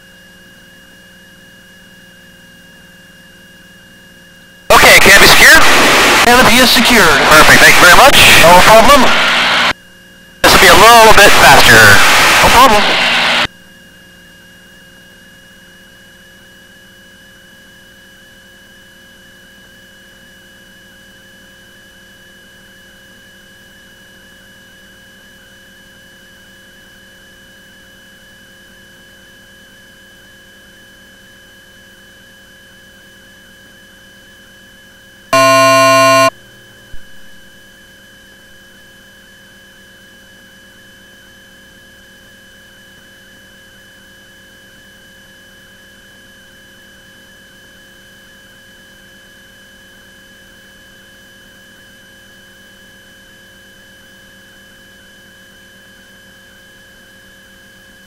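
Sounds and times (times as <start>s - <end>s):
electrical hum with high whine: 0.0s - 13.5s, 35.4s - 36.3s
loud buzzing tone: 4.7s - 9.8s, 10.4s - 13.5s, 35.4s - 36.3s.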